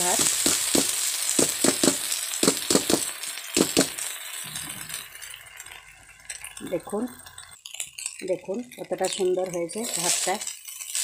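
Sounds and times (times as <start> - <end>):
rice sizzling in a pan: 0.0 - 11.0
colander knocking on pan: 0.1 - 4.0.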